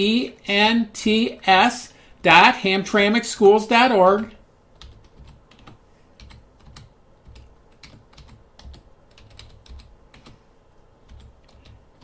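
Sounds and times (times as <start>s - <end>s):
computer keyboard typing: 4.7s - 10.4s, 11.0s - 12.0s.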